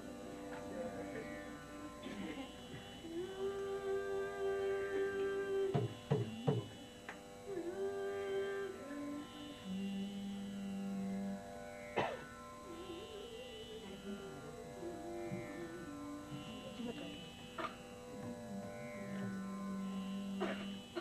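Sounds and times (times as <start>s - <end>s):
woman singing: 0.0s - 6.9s, 7.5s - 11.2s, 12.6s - 17.4s
steady drone: 0.0s - 21.0s.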